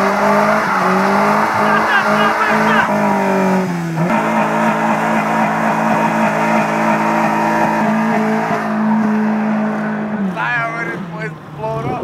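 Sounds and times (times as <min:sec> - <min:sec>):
car engine at high revs: 0:00.0 - 0:12.0.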